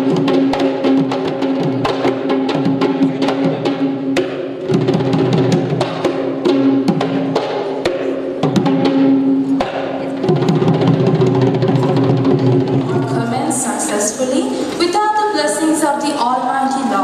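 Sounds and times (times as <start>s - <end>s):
hand drumming on barrel drum: 0.0s - 13.4s.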